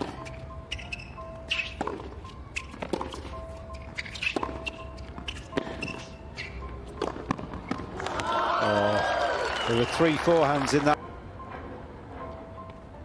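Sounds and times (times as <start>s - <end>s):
sneakers squeaking on court: 0.0s - 8.0s
racquets hitting tennis ball: 0.0s - 8.8s.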